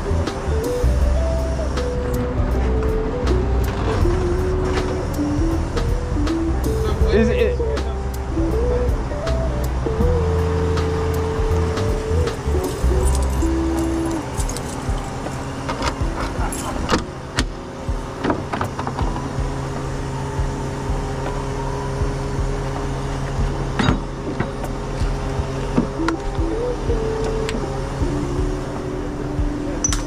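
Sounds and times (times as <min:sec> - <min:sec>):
truck engine idling: 0:00.0 - 0:30.0
tow gear clicking and clinking: 0:12.3 - 0:19.9.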